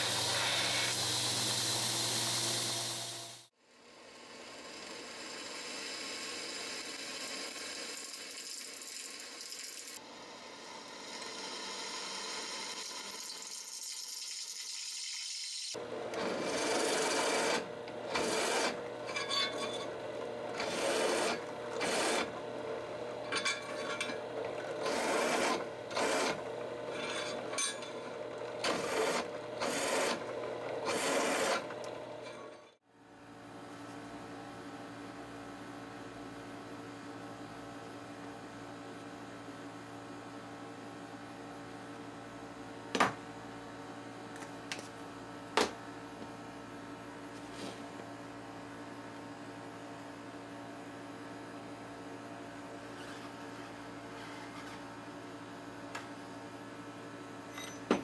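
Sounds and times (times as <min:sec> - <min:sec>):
short grinding bursts: 0:15.7 - 0:32.6
drill press grinding into steel: 0:15.8 - 0:32.8.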